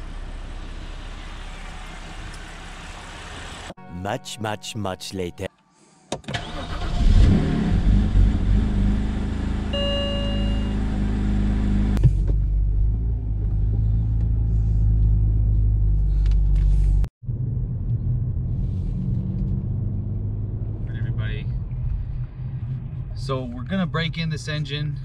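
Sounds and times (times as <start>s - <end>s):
car engine and tyres drone: 6.4s - 16.6s
short single tone: 9.7s - 10.9s.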